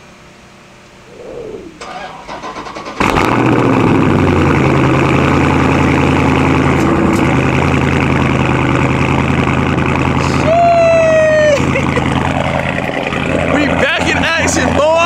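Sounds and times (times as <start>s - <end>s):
loud high tone: 1.0s - 2.1s
car engine idling: 1.7s - 15.0s.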